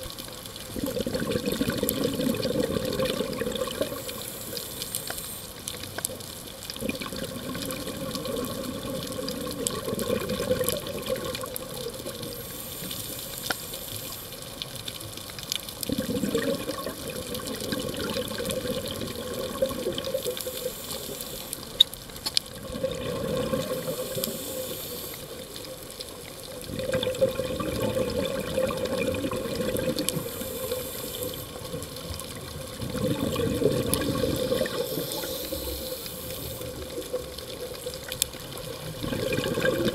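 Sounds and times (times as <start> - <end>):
rush of exhaled bubbles: 0.6 - 5.0, 6.8 - 13.2, 15.8 - 21.6, 22.5 - 39.9
regulator inhale hiss: 3.9 - 5.8, 12.2 - 14.6, 20.1 - 21.8, 23.6 - 25.5, 30.0 - 31.8, 34.4 - 37.1.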